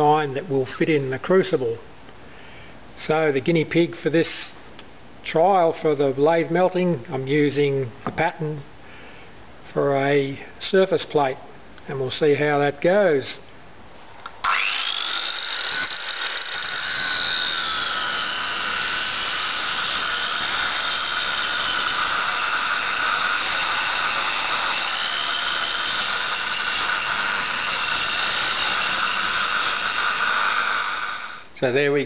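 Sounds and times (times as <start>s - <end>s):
angle grinder cutting metal: 14.2s - 31.5s
grinding hiss: 14.2s - 31.5s.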